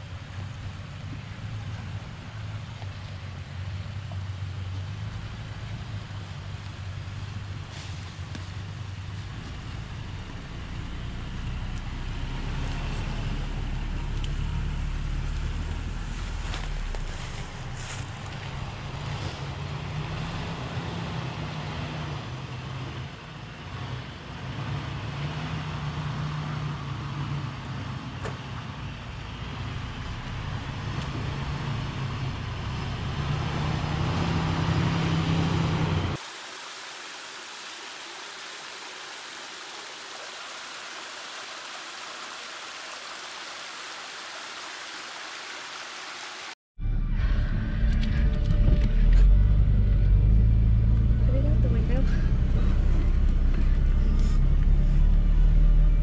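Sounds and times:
off-road vehicle engines crawling: 0.0s - 36.2s, 47.9s - 56.0s
small waterfall rushing over rocks: 36.2s - 46.6s.

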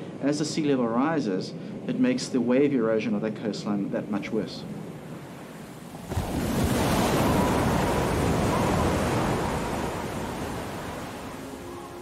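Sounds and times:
rushing water: 5.1s - 12.0s
wave crashing against seawall: 5.9s - 11.4s.

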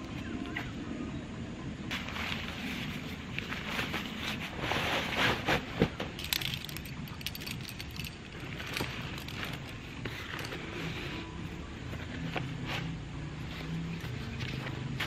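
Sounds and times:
nylon backpack rustling: 1.9s - 15.0s
climbing hardware clinking: 6.1s - 11.0s.

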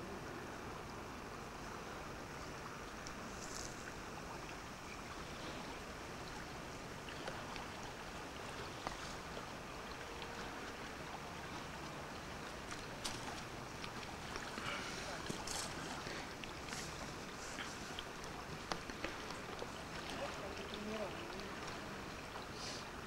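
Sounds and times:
shallow river flowing: 0.0s - 23.0s.

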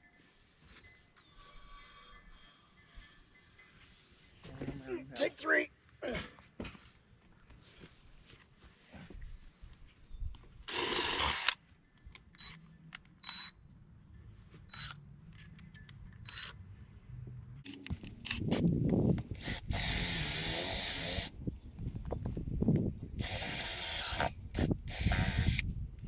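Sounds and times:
cordless drill running: 10.7s - 11.6s, 19.4s - 21.3s, 23.2s - 24.3s, 24.9s - 25.6s.

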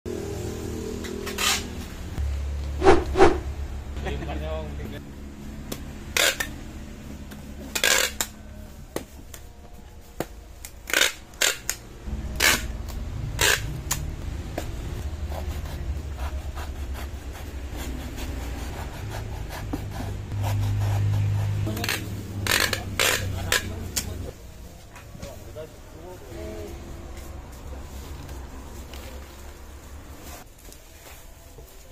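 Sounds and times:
packing tape ripping off dispenser: 12.4s - 14.0s.

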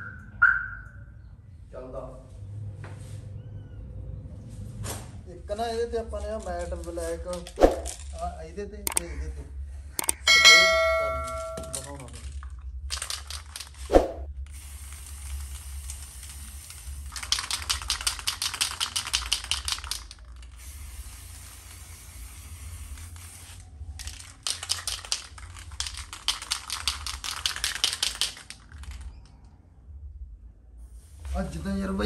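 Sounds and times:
sharp metallic clink: 10.0s - 12.0s
aerosol spray can hissing: 14.5s - 28.6s, 31.0s - 31.4s.

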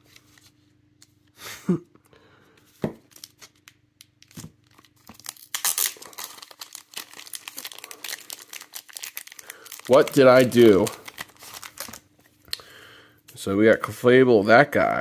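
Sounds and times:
plastic bag crinkling: 3.1s - 12.4s.

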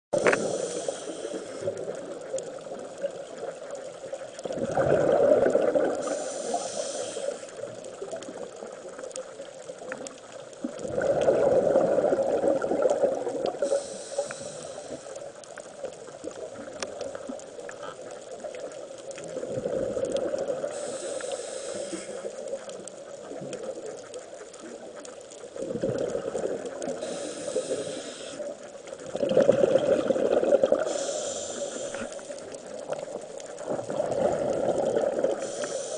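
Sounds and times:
scuba diver breathing underwater: 0.2s - 2.0s, 4.5s - 7.8s, 10.8s - 15.3s, 19.4s - 22.4s, 25.6s - 32.5s, 33.6s - 35.9s
bubbling rush of exhaled air: 4.5s - 7.4s, 10.7s - 15.0s, 19.4s - 22.2s, 25.6s - 28.4s, 29.1s - 32.2s, 33.6s - 35.9s.

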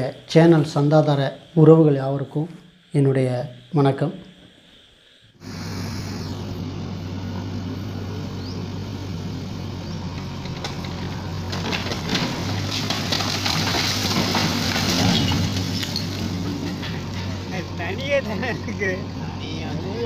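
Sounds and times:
diesel engine running: 5.4s - 20.0s
concrete tank toppling: 10.1s - 17.5s
concrete cracking and crunching: 10.2s - 17.5s.

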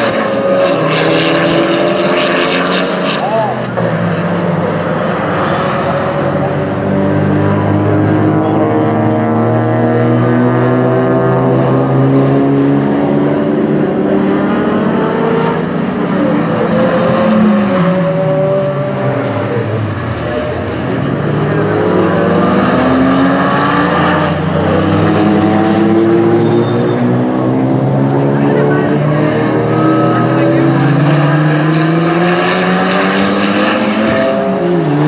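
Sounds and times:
turbocharged engine revving: 0.0s - 35.0s.

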